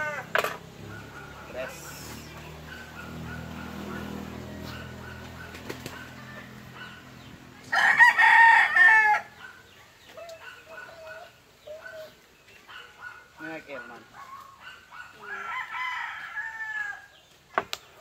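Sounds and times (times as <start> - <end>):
rooster crowing: 6.1 - 9.5, 15.2 - 17.2.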